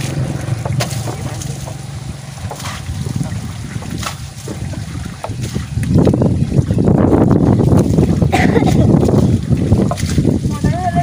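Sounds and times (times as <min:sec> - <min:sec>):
low steady drone: 0:00.0 - 0:05.3
water splashing on tractor: 0:00.0 - 0:11.0.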